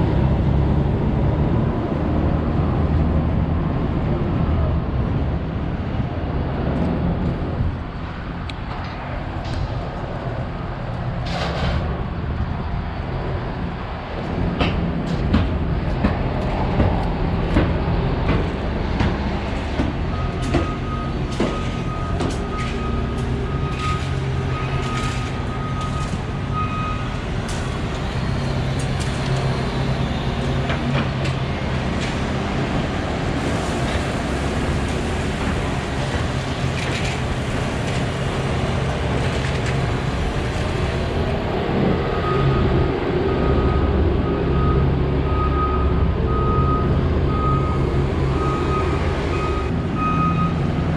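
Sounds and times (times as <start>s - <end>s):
diesel machinery drone: 0.0s - 50.9s.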